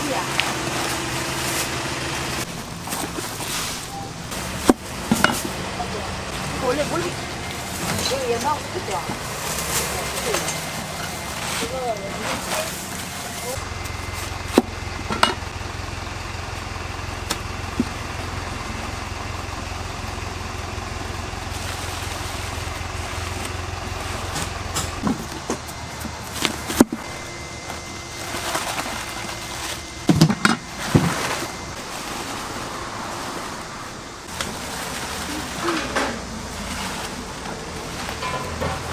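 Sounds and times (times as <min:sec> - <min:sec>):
idling vehicle engine hum: 0:00.0 - 0:38.9
crisp leafy crackle: 0:21.4 - 0:24.3, 0:34.3 - 0:35.9.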